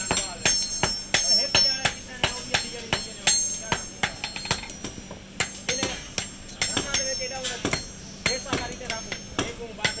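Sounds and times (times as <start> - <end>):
hammer blows on anvil: 0.0 - 10.0.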